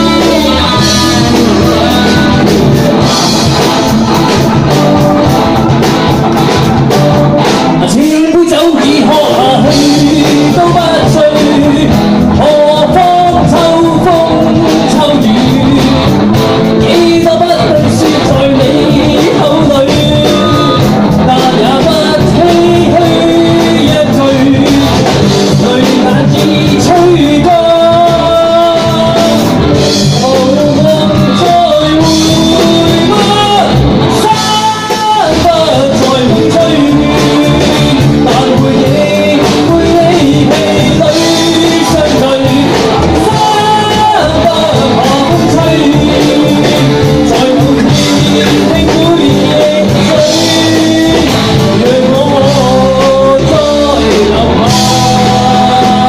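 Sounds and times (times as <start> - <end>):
bass guitar: 0.0 - 56.0
drum kit: 0.0 - 56.0
electric guitar: 0.0 - 56.0
man singing lead: 0.0 - 56.0.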